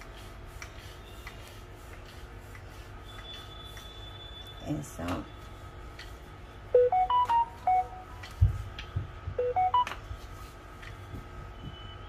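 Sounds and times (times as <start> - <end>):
phone ringtone: 6.8 - 8.2, 9.4 - 9.9.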